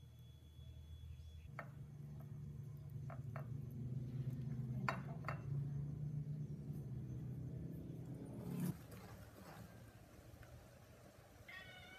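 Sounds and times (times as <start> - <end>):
low steady hum: 0.0 - 11.9
kitchen utensils knocking: 4.8 - 5.7.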